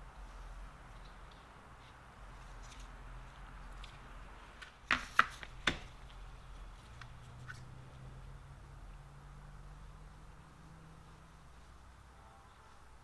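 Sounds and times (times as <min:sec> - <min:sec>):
low steady hum: 0:05.5 - 0:13.0.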